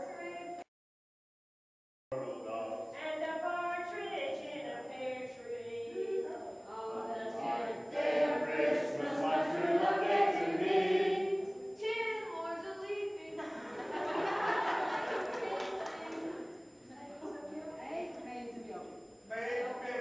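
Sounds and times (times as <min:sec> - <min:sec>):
group of people singing: 0:06.7 - 0:11.8, 0:13.6 - 0:16.5.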